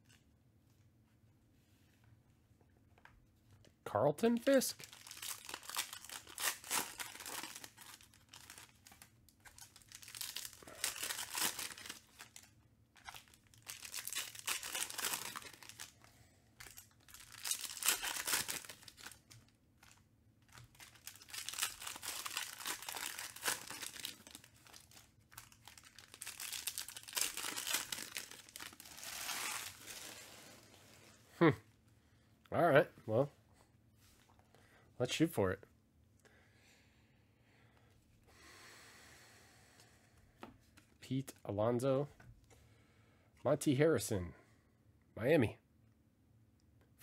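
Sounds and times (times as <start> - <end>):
card pack wrappers tearing: 4.5 - 16.0, 16.6 - 30.4.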